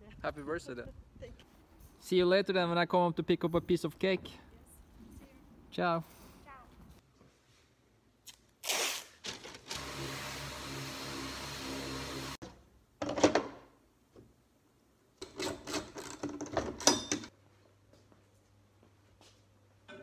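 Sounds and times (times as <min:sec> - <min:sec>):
masking tape ripping: 0:08.2 - 0:09.6
power sander running: 0:09.7 - 0:12.4.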